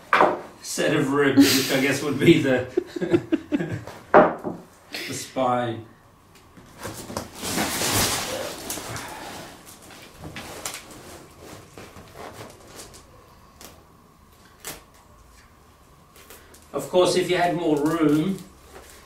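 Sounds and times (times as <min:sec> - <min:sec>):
plastic sheeting rustling: 0:06.7 - 0:13.8, 0:16.0 - 0:19.0.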